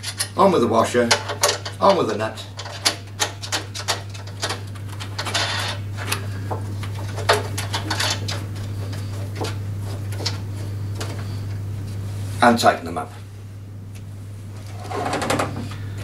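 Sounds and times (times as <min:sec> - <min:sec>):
steady low hum: 0:00.0 - 0:16.0
washer and wing nut clicking: 0:01.0 - 0:01.9, 0:02.6 - 0:05.5.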